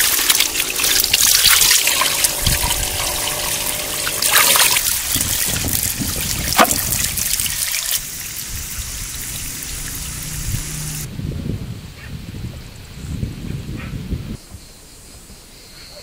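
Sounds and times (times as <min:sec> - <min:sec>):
water trickling and splashing: 0:00.0 - 0:11.1.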